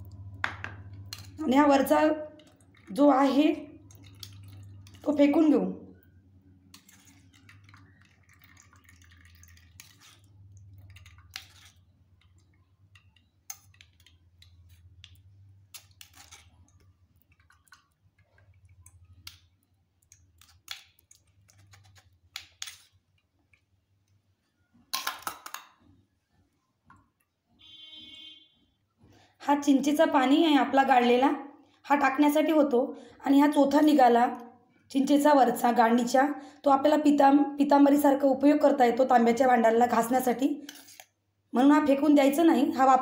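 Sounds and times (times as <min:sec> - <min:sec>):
spoon scraping metal strainer: 0:06.7 - 0:11.9, 0:15.7 - 0:16.7, 0:40.6 - 0:41.1.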